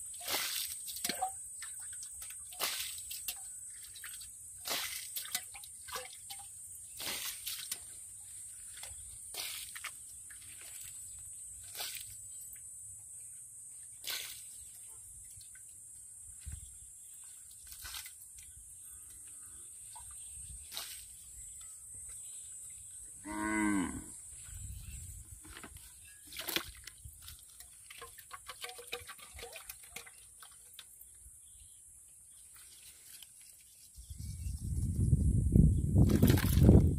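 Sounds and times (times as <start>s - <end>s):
water splashes: 0.0s - 8.0s, 8.6s - 11.0s, 17.5s - 18.2s, 26.3s - 30.9s
cow mooing: 23.2s - 24.2s.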